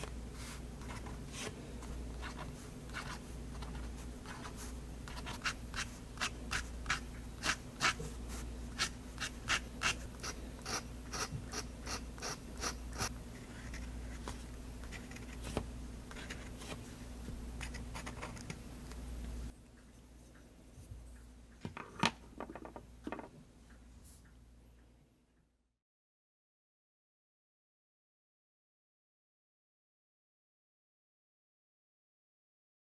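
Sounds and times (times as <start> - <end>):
pen nib scratching on paper: 2.2 - 13.8.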